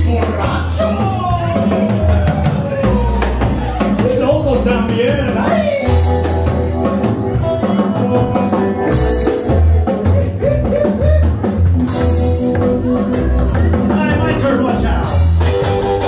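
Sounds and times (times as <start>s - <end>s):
live rockabilly band playing: 0.0s - 16.0s.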